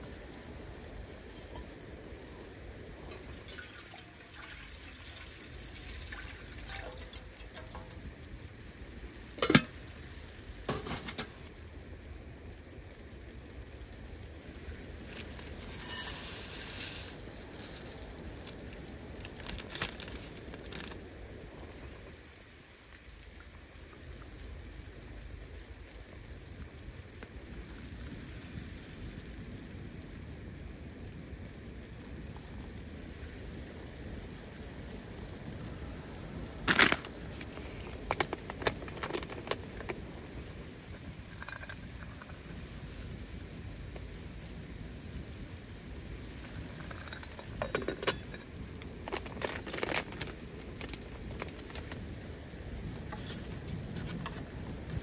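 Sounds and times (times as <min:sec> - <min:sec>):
rain-like patter and hiss: 0:00.0 - 0:55.0
lid clinking on metal pot: 0:01.3 - 0:01.8, 0:06.0 - 0:08.1, 0:09.4 - 0:09.9, 0:10.7 - 0:11.5, 0:15.6 - 0:17.1, 0:46.9 - 0:48.5.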